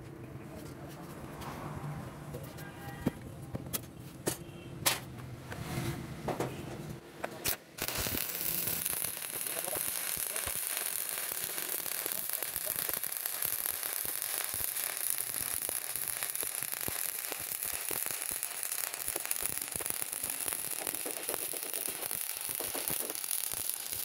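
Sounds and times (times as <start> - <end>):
welding arc crackling and popping: 7.3 - 24.0.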